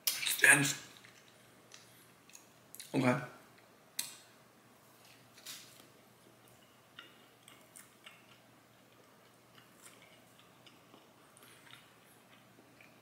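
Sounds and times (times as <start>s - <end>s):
person chewing sandwich: 5.0s - 13.0s.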